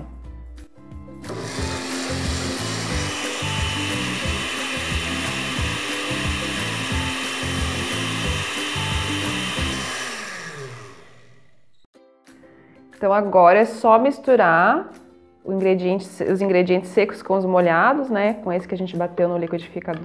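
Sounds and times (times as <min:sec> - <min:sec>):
background music: 0:00.0 - 0:11.2, 0:12.0 - 0:20.0
blender motor whine and churning: 0:01.2 - 0:11.9.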